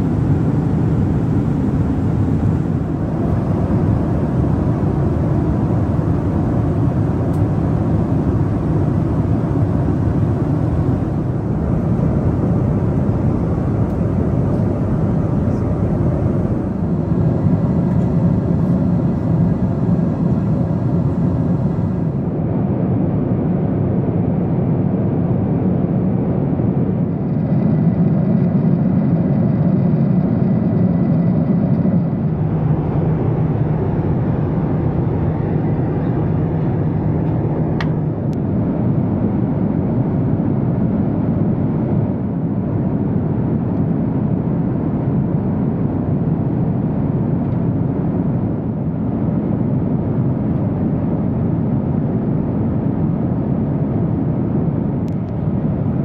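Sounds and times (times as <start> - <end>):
low hum: 0.0 - 42.0
aircraft cabin engine roar: 0.0 - 56.0.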